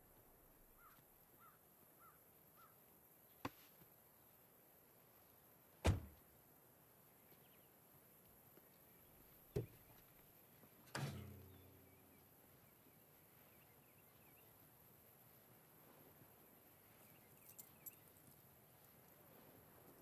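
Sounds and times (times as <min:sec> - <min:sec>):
faint bird chirps: 0:00.7 - 0:03.4, 0:10.6 - 0:15.6.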